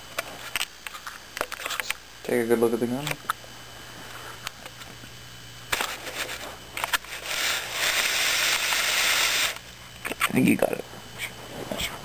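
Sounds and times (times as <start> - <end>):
loud rustling hiss: 5.7 - 9.7.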